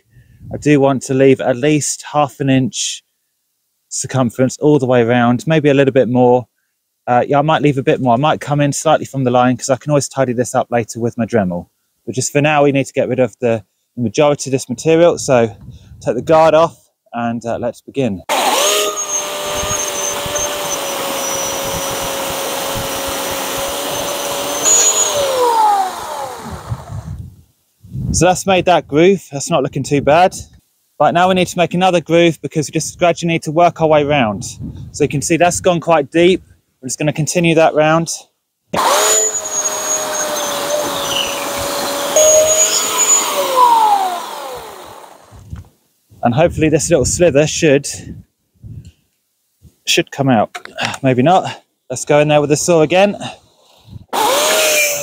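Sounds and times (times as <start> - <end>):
electric chainsaw cutting log: 18.3 - 27.2, 38.8 - 45.4, 53.6 - 55.0.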